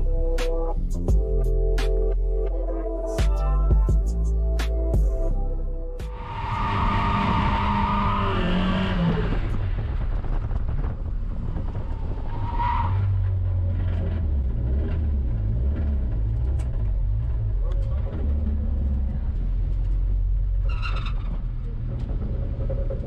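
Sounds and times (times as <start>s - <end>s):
car engine running: 0.0s - 12.0s
tires squealing: 6.0s - 10.2s, 11.6s - 19.2s, 20.4s - 23.0s.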